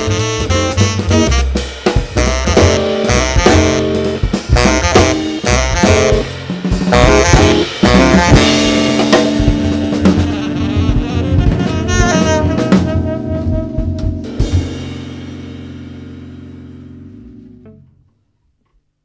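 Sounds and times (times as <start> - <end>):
jazz quartet playing: 0.0 - 17.8
saxophone holding a note: 6.9 - 14.6.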